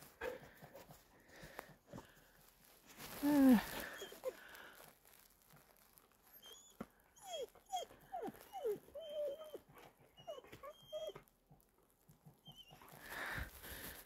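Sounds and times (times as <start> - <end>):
dog whining: 3.8 - 4.4, 6.3 - 11.3, 12.4 - 13.0.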